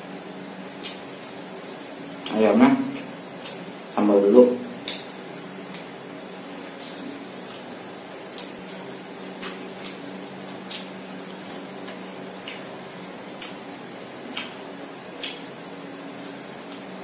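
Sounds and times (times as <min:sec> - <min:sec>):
mouth chewing with lip smacks: 0:00.8 - 0:01.0, 0:08.3 - 0:12.7, 0:13.3 - 0:14.6, 0:15.2 - 0:15.5.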